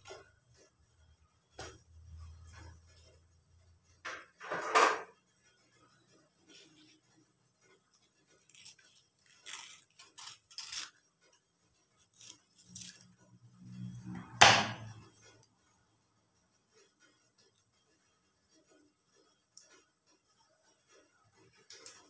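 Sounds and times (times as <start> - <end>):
scissors snipping: 8.5 - 11.0.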